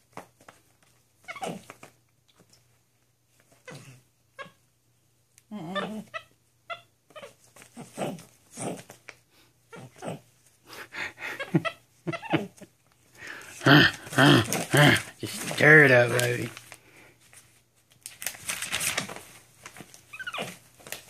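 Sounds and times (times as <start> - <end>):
paper pages rustling: 13.2 - 21.0.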